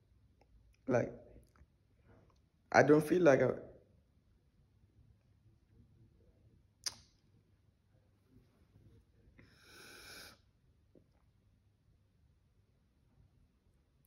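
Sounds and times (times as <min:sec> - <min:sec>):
soft hiss: 0:08.2 - 0:11.6.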